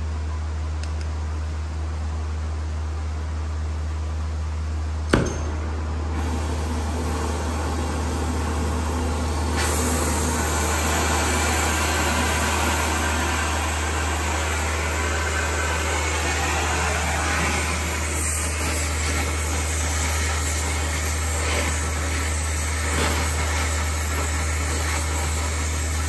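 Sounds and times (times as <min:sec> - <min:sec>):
torch flame hissing: 0:06.2 - 0:26.0.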